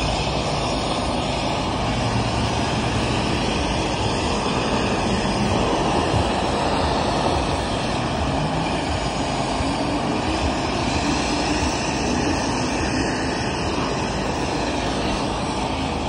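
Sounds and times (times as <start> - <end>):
pressure washer droning: 0.0 - 16.0.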